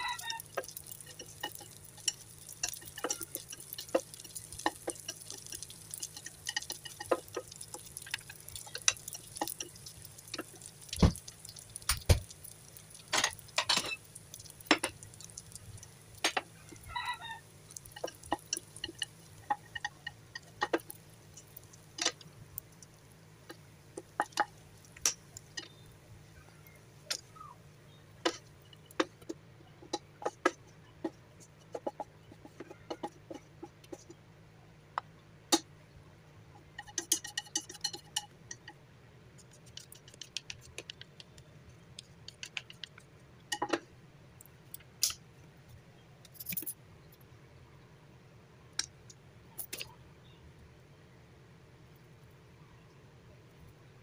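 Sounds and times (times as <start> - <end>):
spatula scraping a pan: 36.7 - 38.4.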